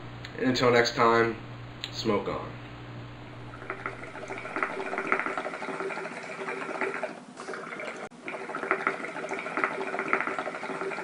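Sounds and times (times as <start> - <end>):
water bubbling and gurgling: 3.3 - 11.0.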